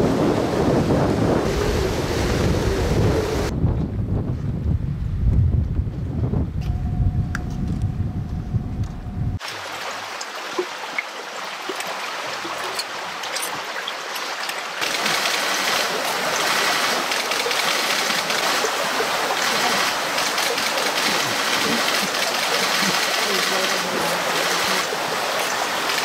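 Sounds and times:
flowing water rushing: 0:00.0 - 0:03.5, 0:09.4 - 0:26.0.

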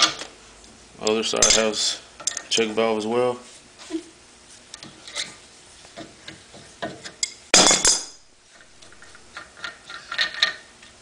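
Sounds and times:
wrench clattering on metal bench: 0:06.9 - 0:08.2.

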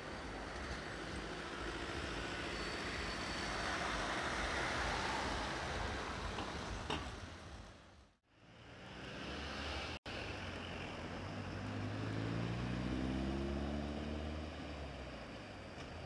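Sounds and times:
tram moving: 0:00.0 - 0:07.9
car passing: 0:00.0 - 0:15.3.

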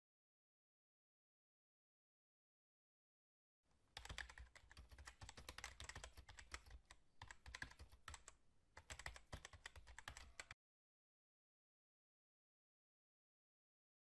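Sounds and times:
keyboard key clicks: 0:04.0 - 0:10.6.

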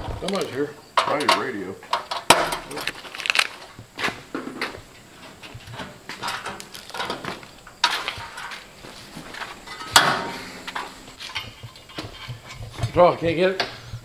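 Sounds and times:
metal parts and tools clanking: 0:04.4 - 0:13.7.

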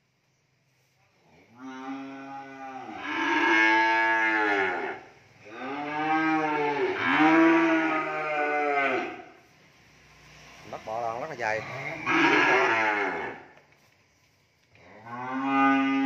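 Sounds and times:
cattle mooing: 0:01.6 - 0:09.3, 0:11.6 - 0:13.4, 0:14.9 - 0:16.0.

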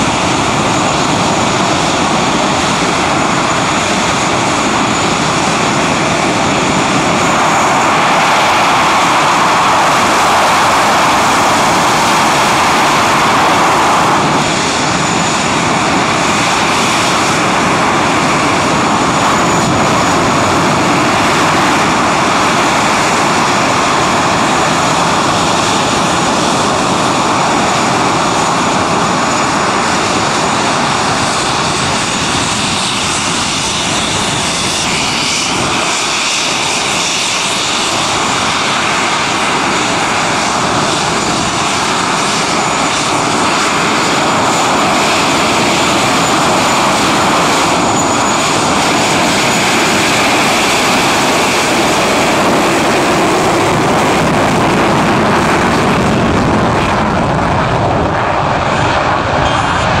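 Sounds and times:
jet engines roaring: 0:00.0 - 1:00.0
thin high whine: 0:59.2 - 1:00.0.

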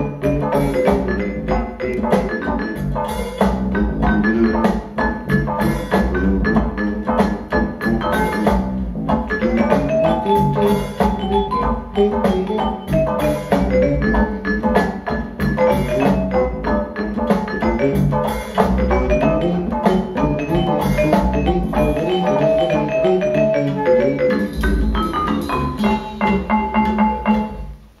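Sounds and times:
bass line: 0:00.0 - 0:28.0
mallet-like percussive notes: 0:09.4 - 0:27.7.

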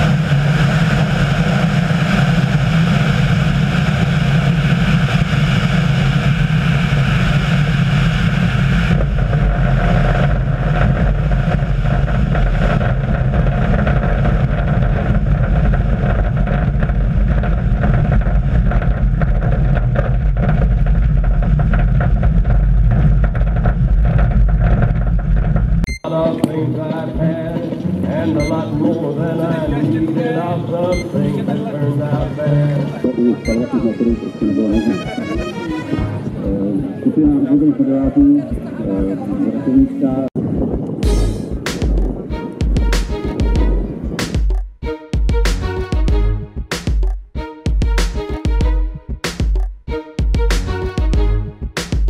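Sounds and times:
engine running steadily: 0:00.0 - 0:25.9, 0:41.0 - 0:52.0
wind rumble on microphone: 0:00.0 - 0:32.4, 0:34.5 - 0:44.6.

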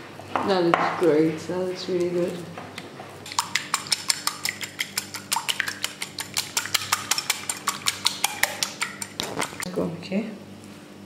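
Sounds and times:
whisk clicking against bowl: 0:03.3 - 0:09.7.

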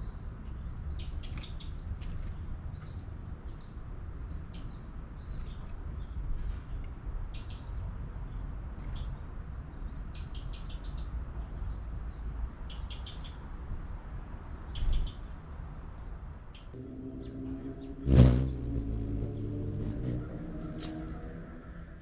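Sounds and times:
hummingbird chirps: 0:16.8 - 0:21.6
low outdoor rumble: 0:16.8 - 0:22.0.

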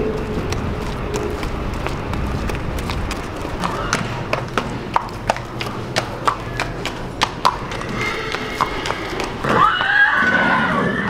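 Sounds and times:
horse hooves on concrete: 0:00.0 - 0:11.0
horse whinnying: 0:07.7 - 0:11.0.

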